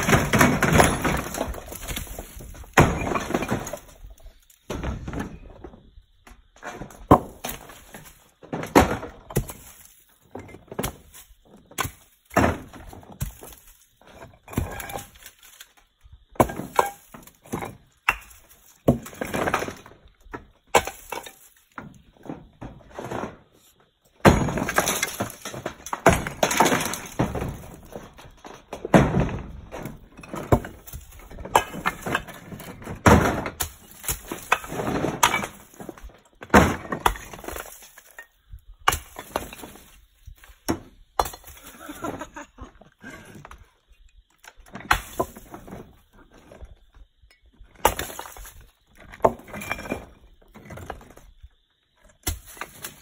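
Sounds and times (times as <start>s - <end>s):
rubble clattering: 0.0s - 53.0s.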